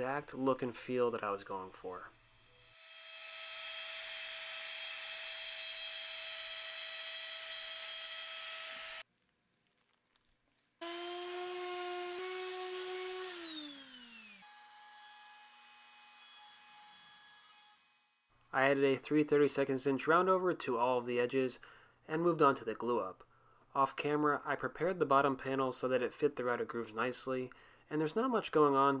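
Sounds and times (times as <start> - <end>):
power tool motor winding down: 0.0 - 9.0, 10.8 - 16.6
router whining: 0.0 - 9.0, 10.8 - 18.0
router table motor running: 2.1 - 9.0, 10.8 - 17.9.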